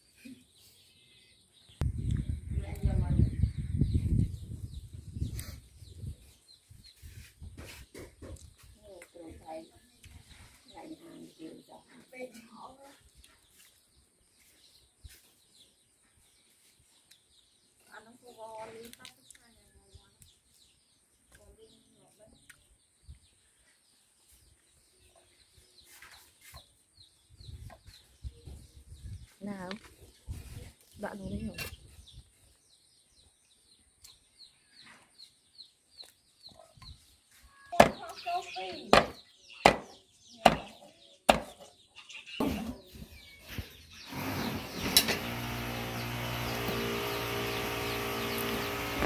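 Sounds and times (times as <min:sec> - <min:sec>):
birds chirping: 0:00.0 - 0:49.0
cleaver chopping on wooden block: 0:39.0 - 0:40.7, 0:41.3 - 0:41.5.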